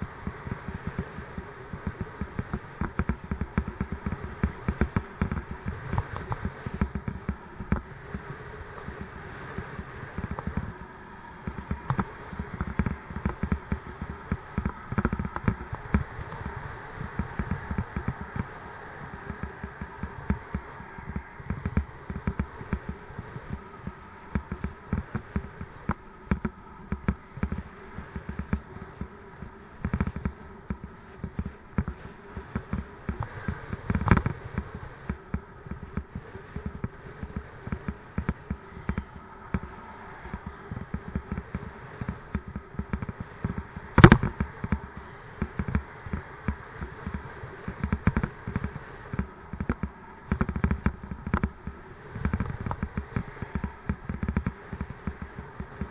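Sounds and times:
bicycle rattling on bumpy road: 0.0 - 55.9
bicycle rolling noise: 0.0 - 55.9.

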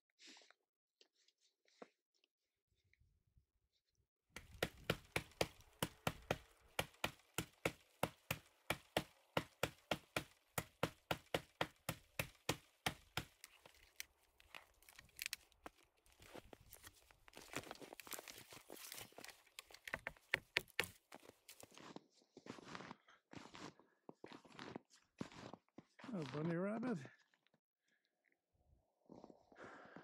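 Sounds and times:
snow cracking: 4.4 - 19.9
footsteps crunching in snow: 12.2 - 27.0.

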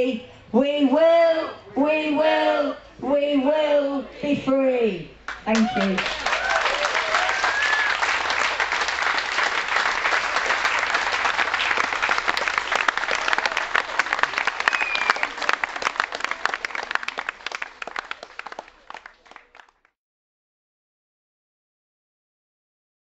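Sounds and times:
audience applauding: 5.3 - 19.9.

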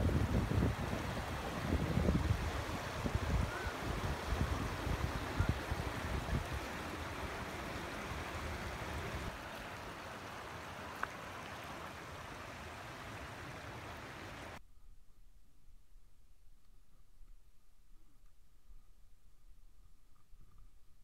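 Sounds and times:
wind buffeting microphone: 0.0 - 9.3
shallow river over stones: 0.0 - 21.0.

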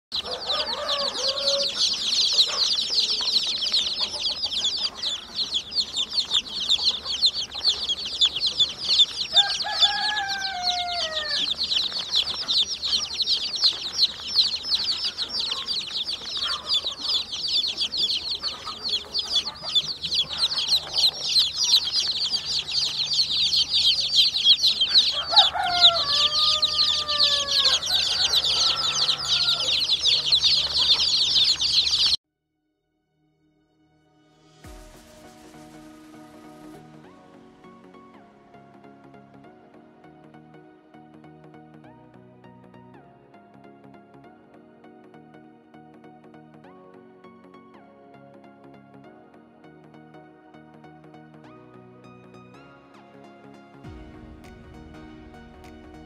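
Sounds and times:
baby chicks peeping: 0.1 - 32.2.

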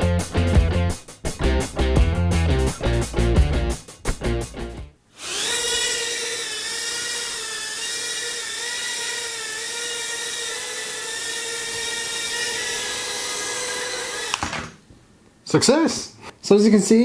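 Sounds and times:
quadcopter motors whining: 5.2 - 14.5.

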